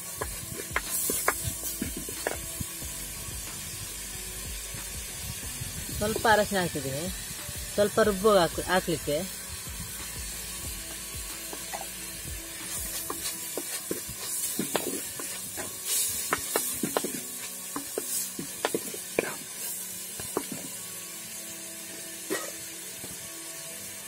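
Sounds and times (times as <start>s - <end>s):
frying sizzle: 0.0s - 24.0s
wooden spatula scraping clay pot: 12.5s - 19.5s.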